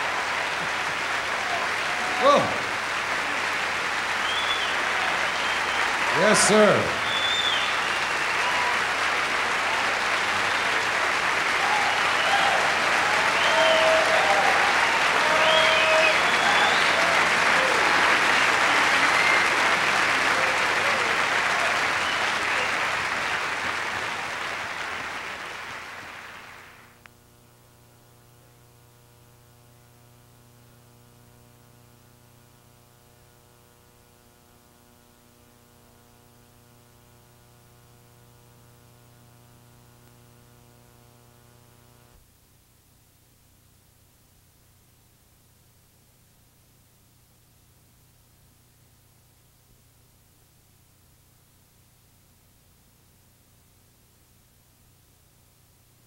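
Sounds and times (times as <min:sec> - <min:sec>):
cheers: 0:00.0 - 0:26.8
audience applauding: 0:00.0 - 0:27.0
faint electrical hum: 0:00.0 - 0:56.0.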